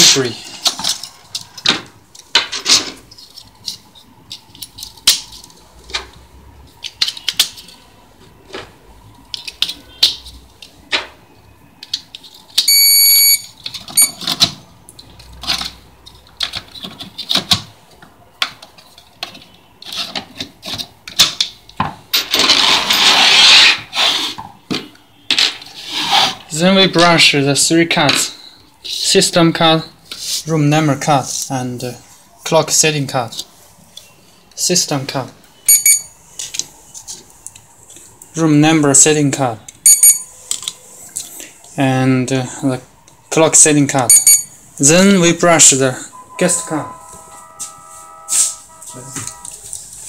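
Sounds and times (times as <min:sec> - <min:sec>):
short electronic beep: 0:12.7 - 0:14.2, 0:35.6 - 0:36.1, 0:39.8 - 0:40.3, 0:44.1 - 0:44.5, 0:46.1 - 0:49.7.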